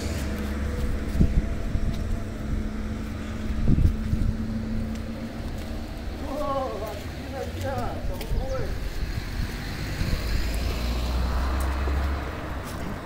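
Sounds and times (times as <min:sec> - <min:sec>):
wind rumbling on microphone: 0:00.0 - 0:06.1, 0:07.8 - 0:13.0
vehicle engine running: 0:00.0 - 0:07.9.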